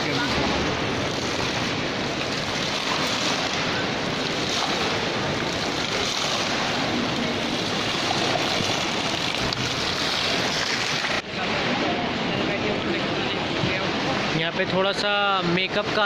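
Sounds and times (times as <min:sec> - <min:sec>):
water jets splashing into pool: 0:00.0 - 0:16.0.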